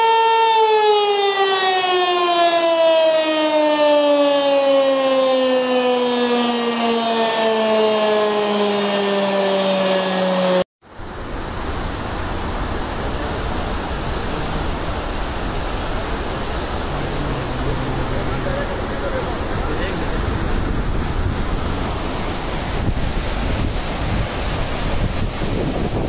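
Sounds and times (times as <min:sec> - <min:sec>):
siren wailing: 0:00.0 - 0:10.7, 0:16.8 - 0:19.2
water rushing through spillway: 0:10.9 - 0:26.0.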